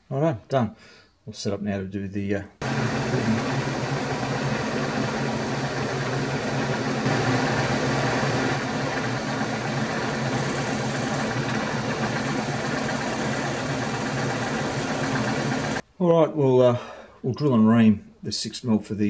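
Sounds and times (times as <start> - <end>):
drill cutting metal: 2.6 - 15.8
milling spindle humming: 2.6 - 15.8.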